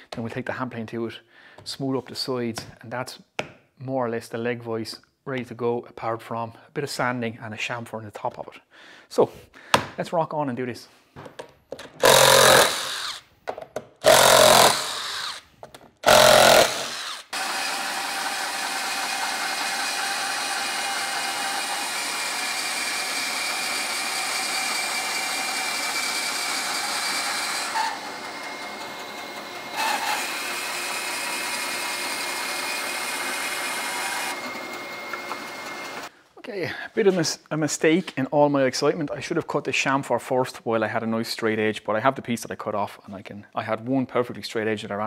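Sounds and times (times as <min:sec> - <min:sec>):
bandsaw cutting plywood: 0:12.0 - 0:13.2, 0:14.0 - 0:15.4, 0:16.0 - 0:36.1
cordless driver running: 0:12.0 - 0:13.2, 0:14.0 - 0:15.4, 0:16.0 - 0:36.1.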